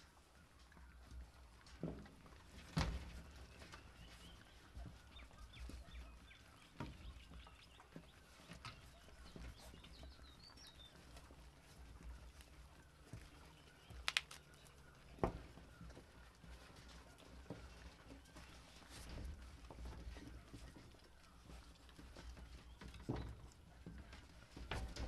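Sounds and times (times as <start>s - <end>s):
puppies chewing: 0.0s - 24.7s.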